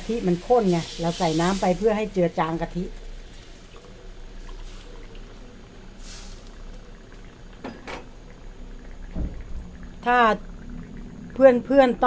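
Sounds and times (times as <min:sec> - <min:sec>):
curry bubbling in a wok: 0:00.0 - 0:12.0
brief hiss: 0:06.0 - 0:06.6.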